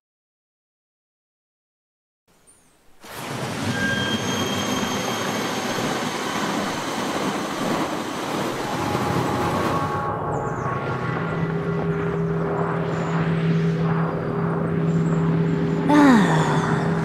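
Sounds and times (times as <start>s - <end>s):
rushing outdoor ambience: 3.0s - 17.0s.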